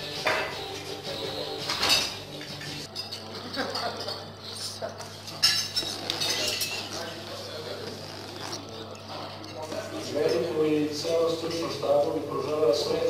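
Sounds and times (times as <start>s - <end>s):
background music: 0.0s - 6.4s
cutlery clinking on plates: 1.6s - 7.2s.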